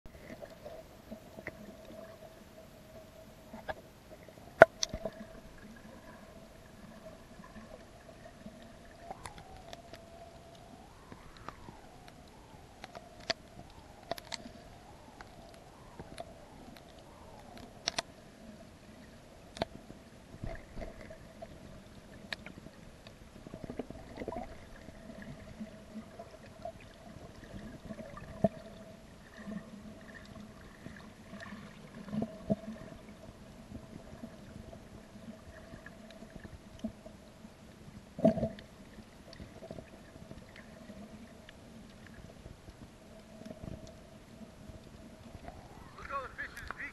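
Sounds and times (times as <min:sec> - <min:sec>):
muffled underwater noise: 0:43.2 - 0:46.9.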